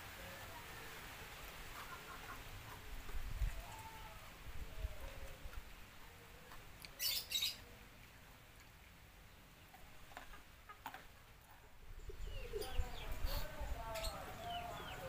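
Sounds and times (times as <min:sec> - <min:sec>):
chicken clucking: 0:01.7 - 0:02.8, 0:09.6 - 0:15.0.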